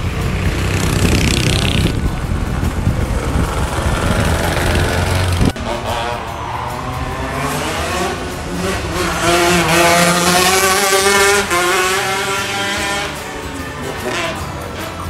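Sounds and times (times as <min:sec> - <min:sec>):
kart engine revving past: 0:00.0 - 0:02.2, 0:02.9 - 0:15.0.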